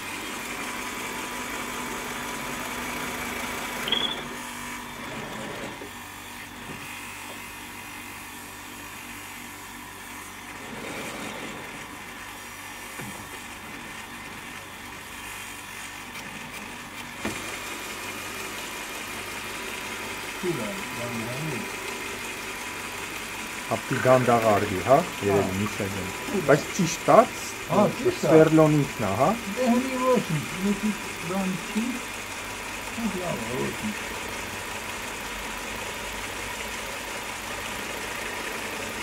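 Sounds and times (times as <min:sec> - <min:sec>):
drill press motor running: 0:00.0 - 0:39.0
rising squeal: 0:03.9 - 0:04.4.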